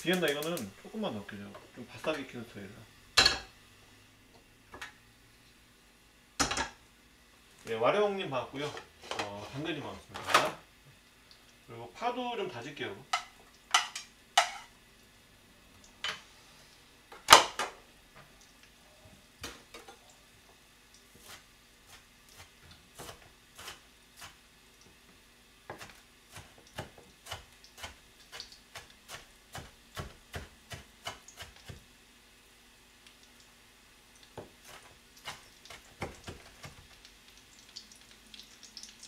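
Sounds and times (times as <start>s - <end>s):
knife chopping on plastic board: 25.7s - 31.8s.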